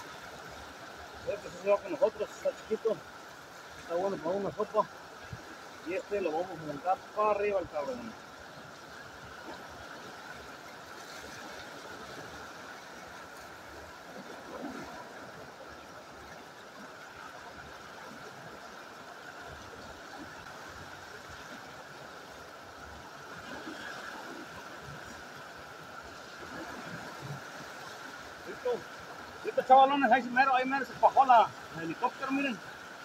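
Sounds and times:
river rushing over rocks: 0.0 - 33.0.

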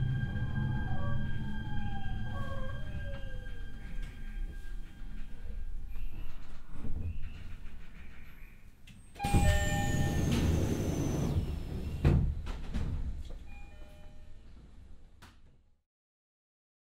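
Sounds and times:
train door chime: 0.0 - 6.4, 9.2 - 11.4, 13.4 - 14.6
train doors opening: 0.0 - 14.7.

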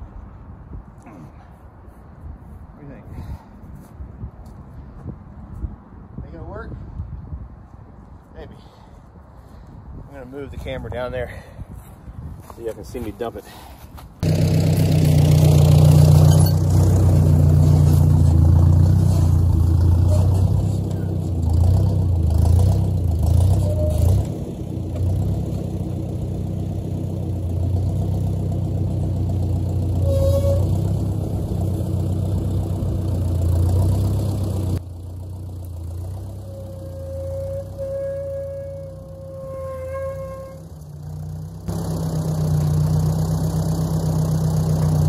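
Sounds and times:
tractor engine running: 14.2 - 45.0.

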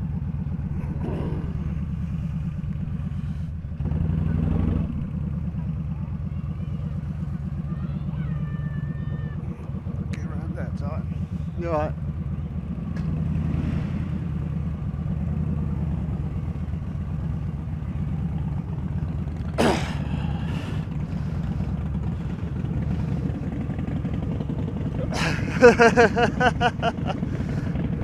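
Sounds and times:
rapid pitched pulses: 0.0 - 7.9
motorcycle engine rumbling: 0.0 - 28.0.

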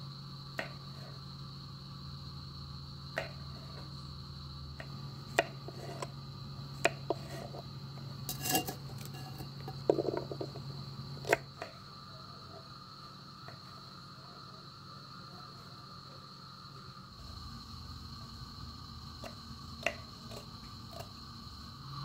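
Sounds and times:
steady low hum: 0.0 - 22.0
kitchenware clinking: 8.3 - 10.3
scraping rustle: 8.3 - 10.6.

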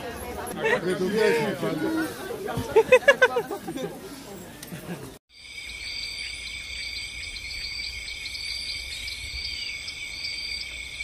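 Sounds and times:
shrill insect chorus: 5.3 - 11.0.

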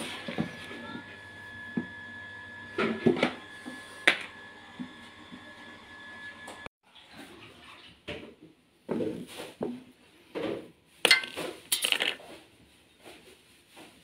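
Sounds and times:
metal parts knocking and clinking: 11.1 - 12.2.

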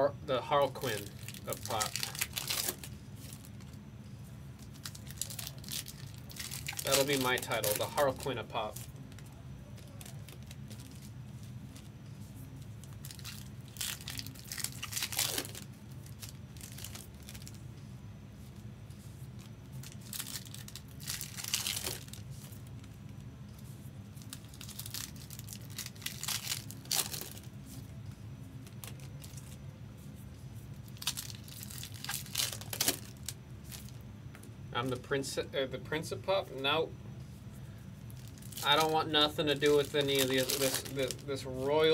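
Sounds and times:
steady low hum: 0.0 - 41.9
plastic packaging crinkling and tearing: 0.6 - 3.8, 4.6 - 17.6, 19.2 - 23.0, 24.1 - 28.0, 28.6 - 34.0, 37.9 - 41.9.

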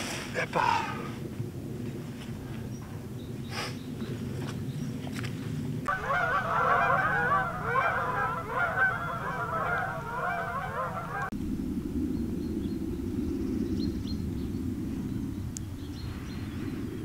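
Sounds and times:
low outdoor rumble: 0.0 - 17.0
flock of birds calling: 5.9 - 11.3.

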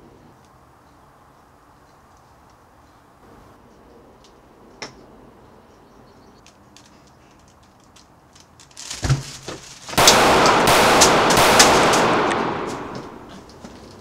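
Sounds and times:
rapid gunfire burst: 10.0 - 13.3
gunshots: 10.0 - 13.5.

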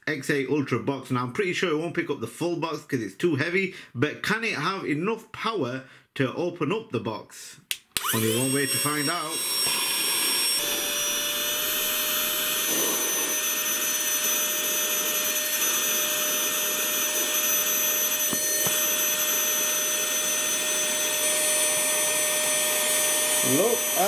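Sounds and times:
handheld vacuum motor whine: 8.0 - 24.0.

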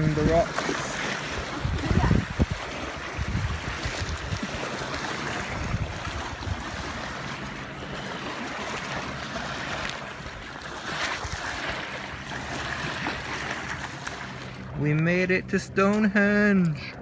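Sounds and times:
wind buffeting microphone: 0.0 - 11.8
small waves lapping on pebbles: 0.0 - 14.8.

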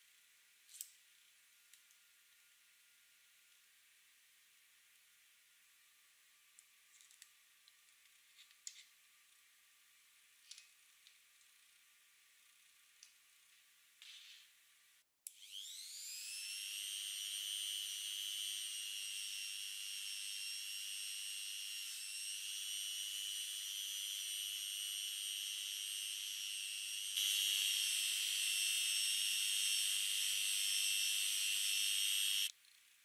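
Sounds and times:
rotary tool high-pitched whine: 15.3 - 33.0.

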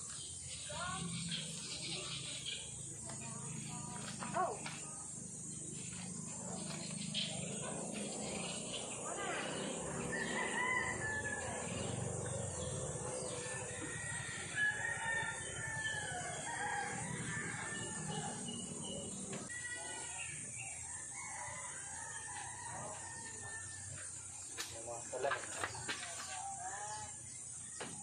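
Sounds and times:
roosters crowing: 6.8 - 24.2.

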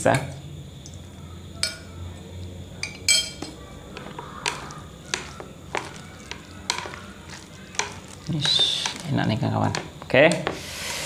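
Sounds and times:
utensils clicking on ceramic plate: 2.8 - 10.6.

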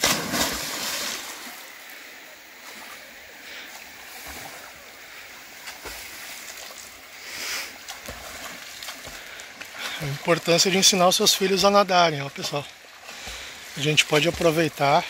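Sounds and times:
water splashing from swimmer: 0.0 - 1.7, 3.6 - 11.2, 12.4 - 15.0.

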